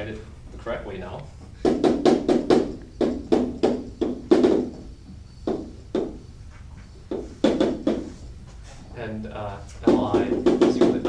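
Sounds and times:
chalk tapping on blackboard: 1.6 - 8.7, 9.8 - 11.0.

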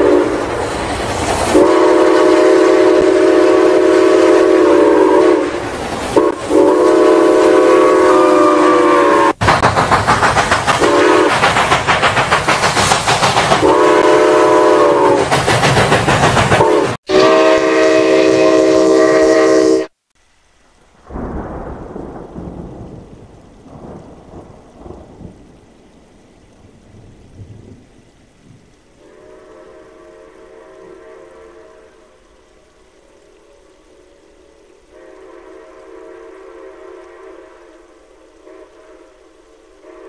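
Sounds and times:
steam locomotive chime whistle: 0.0 - 0.6, 1.5 - 9.4, 10.8 - 11.4, 13.6 - 15.2, 16.6 - 19.9, 29.0 - 32.2, 33.1 - 40.0
steam train chuffing and clatter: 0.0 - 19.6.

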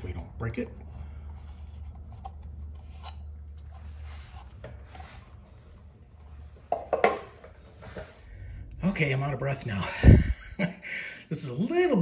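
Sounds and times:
rubbing and scraping handling: 0.5 - 8.3.

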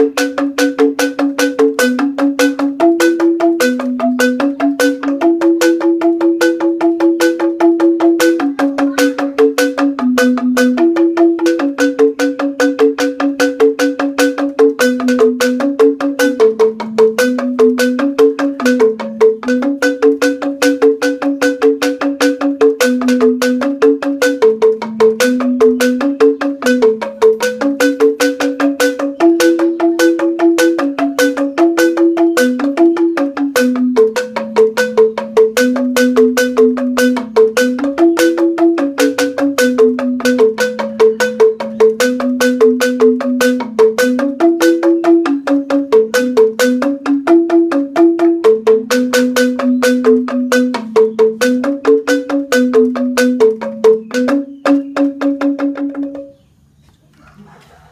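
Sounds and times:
bamboo xylophone played with mallets: 0.0 - 56.7.

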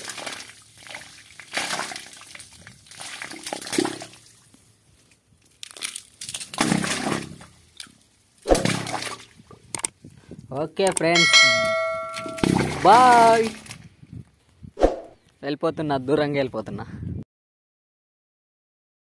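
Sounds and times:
soil clods splashing into water: 5.5 - 9.3.

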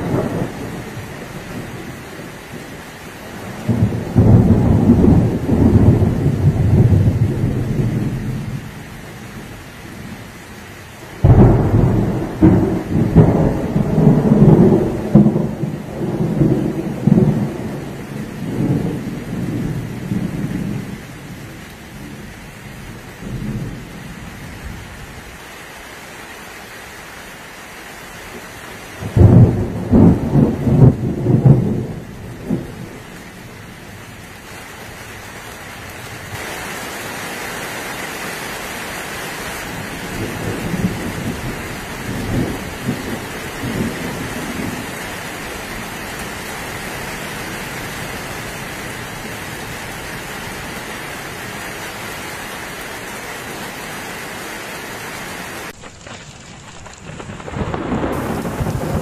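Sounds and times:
thunder rumbling: 0.0 - 10.3, 11.2 - 25.1, 29.0 - 34.5, 39.6 - 50.8, 55.7 - 59.0
rain on plastic roof: 0.0 - 59.0.

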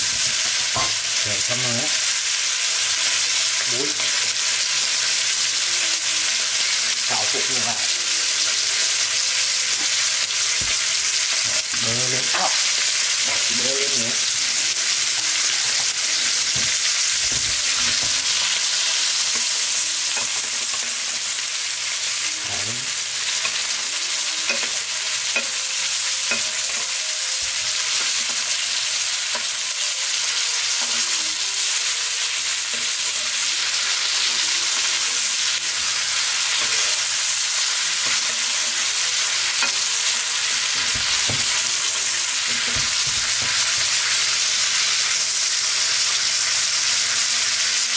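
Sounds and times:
steak sizzling in a frying pan: 0.0 - 47.9
spoon scraping a pan: 7.9 - 22.2, 22.9 - 44.9.

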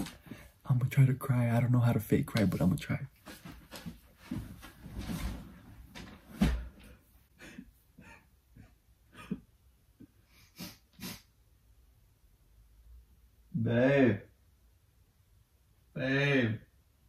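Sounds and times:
bedding rustling: 3.2 - 7.3
man sniffing and breathing: 10.2 - 11.4.

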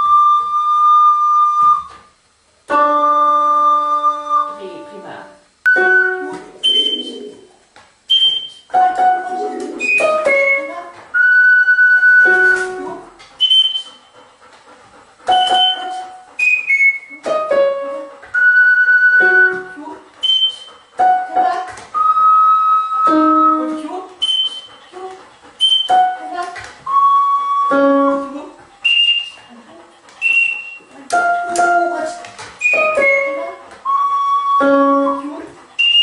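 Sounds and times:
melody of clear held notes: 2.7 - 6.8.

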